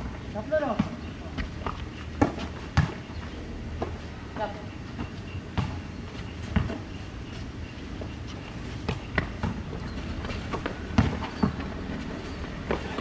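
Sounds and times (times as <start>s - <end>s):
basketball bouncing on concrete: 0.6s - 3.0s, 5.5s - 6.9s, 8.8s - 13.0s.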